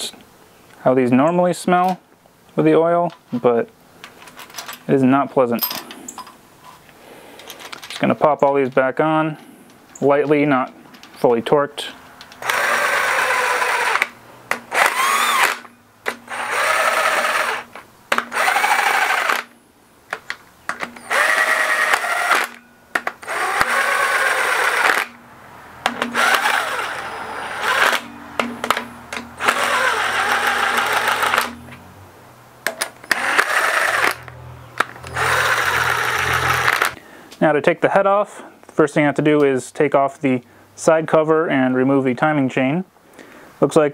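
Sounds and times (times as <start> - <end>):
cordless power driver whine: 12.4 - 19.6, 20.8 - 25.2, 25.9 - 31.8, 33.0 - 37.0.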